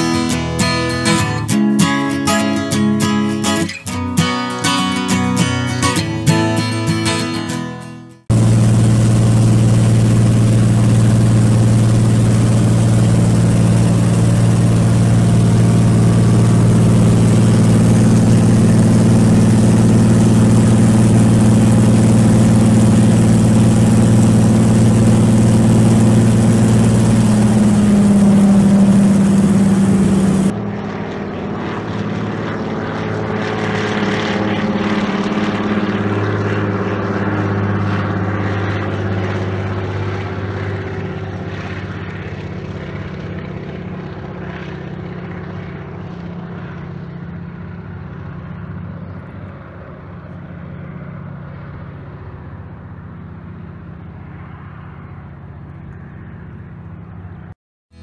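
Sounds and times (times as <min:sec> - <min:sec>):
loud engine drone: 0:00.0 - 0:58.0
quieter engine drone: 0:08.2 - 0:58.0.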